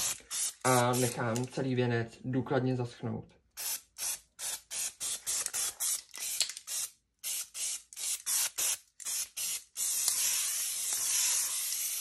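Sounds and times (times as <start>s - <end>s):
aerosol spray paint hissing: 0.0s - 1.2s, 3.6s - 12.0s.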